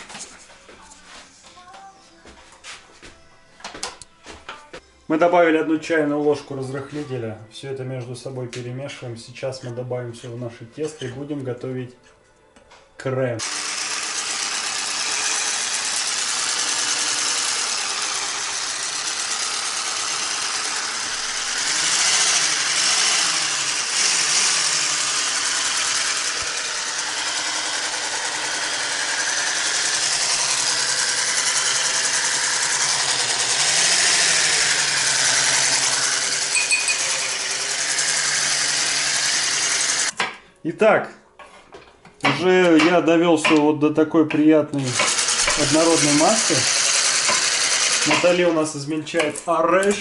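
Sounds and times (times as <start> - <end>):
electric hand mixer humming: 13.4 - 40.2, 44.8 - 48.6.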